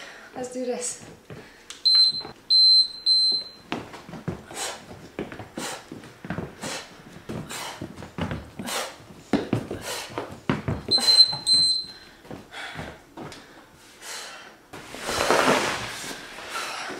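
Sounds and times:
timer countdown beeps: 0:01.8 - 0:03.6, 0:10.9 - 0:12.0.

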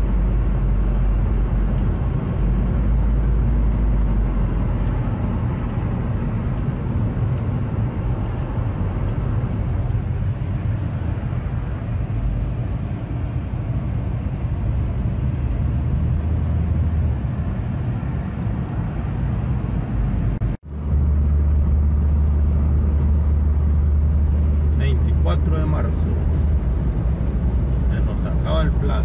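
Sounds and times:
car cabin road rumble: 0:00.0 - 0:29.0.

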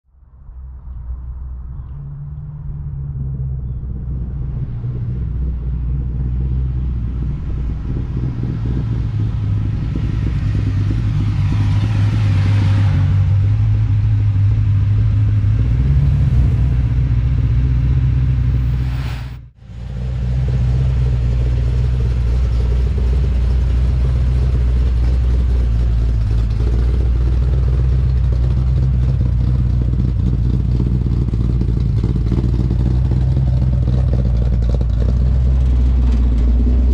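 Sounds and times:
truck engine idling: 0:00.6 - 0:36.9
rising whoosh: 0:02.6 - 0:21.4.

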